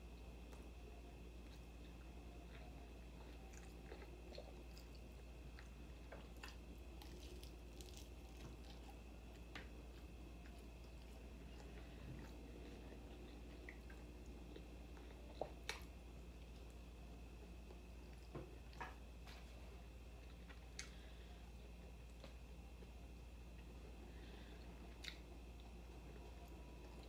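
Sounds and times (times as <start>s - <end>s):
chewing crisp taco shell: 1.4s - 16.8s.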